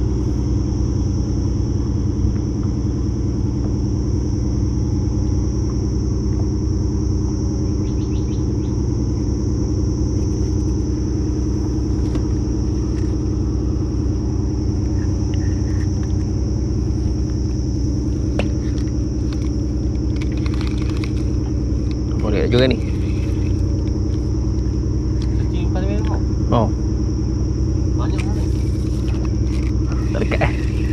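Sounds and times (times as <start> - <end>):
engine drone: 0.0 - 30.9
high-pitched buzz: 2.9 - 30.9.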